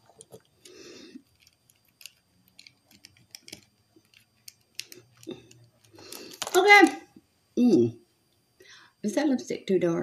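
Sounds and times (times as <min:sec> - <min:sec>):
small clicks and taps: 0:00.1 - 0:06.6.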